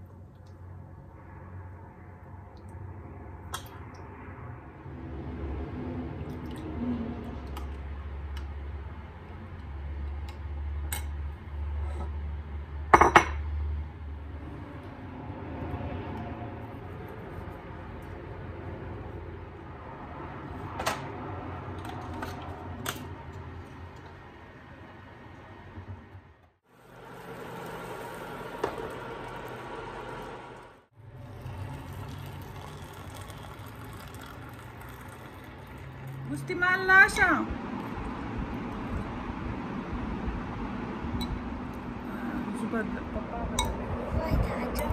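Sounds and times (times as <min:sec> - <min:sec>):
water bubbling in saucepan: 0:26.7 - 0:36.4
water pouring into glass mug: 0:26.8 - 0:36.4.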